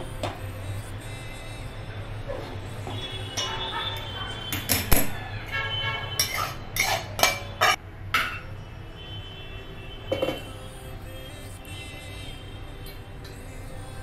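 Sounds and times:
metal pots clanking: 3.4s - 8.5s.

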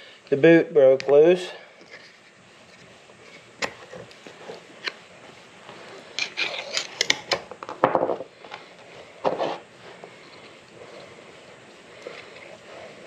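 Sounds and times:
tool scraping and clicking: 6.1s - 7.4s.

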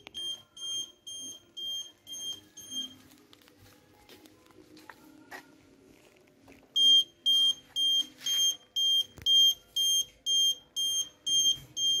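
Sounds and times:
high-pitched alarm buzzer beeps: 6.8s - 12.0s.

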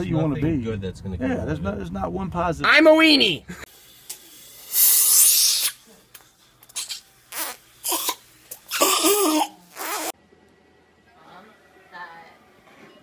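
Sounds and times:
saliva ejector hissing suction: 4.6s - 5.8s.

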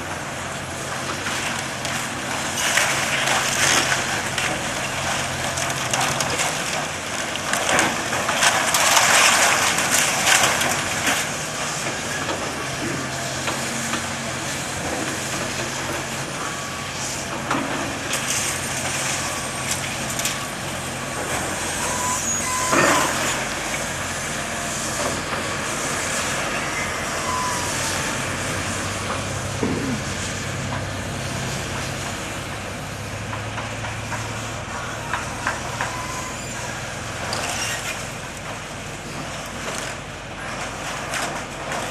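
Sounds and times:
excavator engine running: 0.0s - 41.9s
falling debris crashing and scraping: 0.0s - 41.9s
metal screeching: 21.6s - 23.5s, 26.2s - 28.7s, 34.8s - 38.0s.

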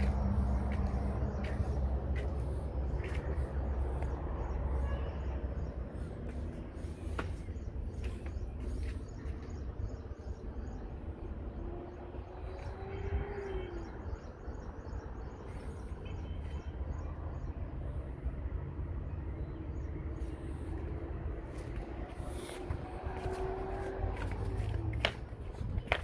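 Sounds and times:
small birds chirping: 0.0s - 11.1s
steady low rumble: 0.0s - 12.0s.

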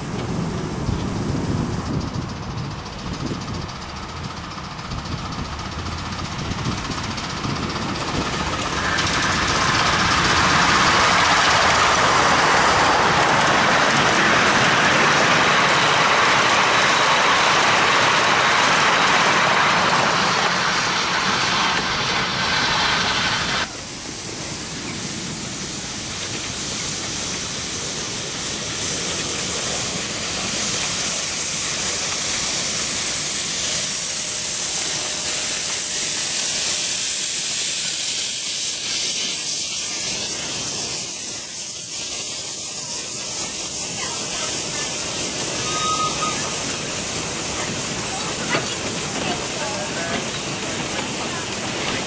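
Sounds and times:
coach wheels rolling on rails: 0.0s - 52.0s
steam locomotive hissing: 0.0s - 52.0s.

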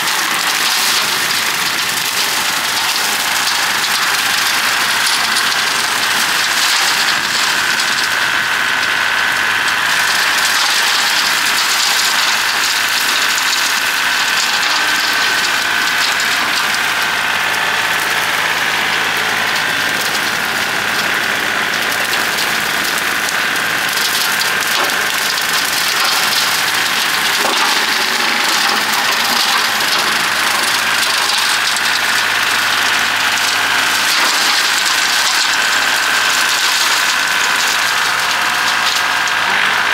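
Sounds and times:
diesel tractor engine running: 0.0s - 39.9s.

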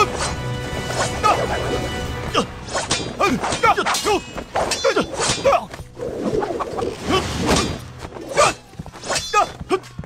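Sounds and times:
fighters shouting and grunting: 1.0s - 5.8s, 7.0s - 10.0s.

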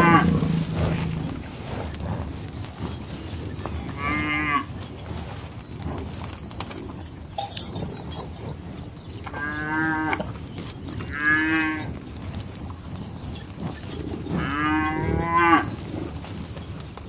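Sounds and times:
cattle mooing: 0.0s - 2.4s, 3.8s - 4.8s, 9.3s - 10.3s, 11.0s - 12.1s, 13.3s - 16.2s
high clink: 6.8s - 8.8s, 12.1s - 16.8s.

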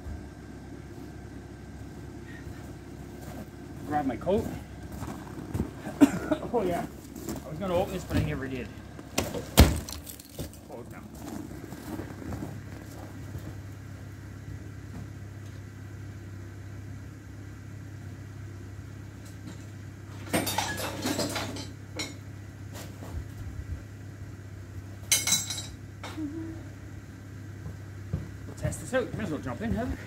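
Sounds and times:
steady low hum: 0.0s - 30.0s
small hard things clinking: 9.8s - 12.5s, 20.2s - 22.2s, 25.1s - 25.8s.

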